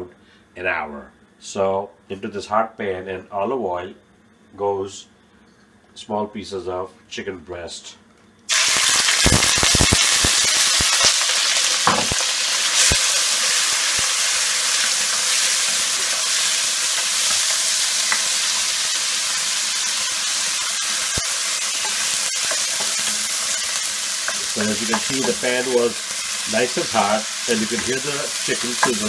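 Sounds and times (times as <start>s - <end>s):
chicken sizzling in oil: 8.5s - 29.0s.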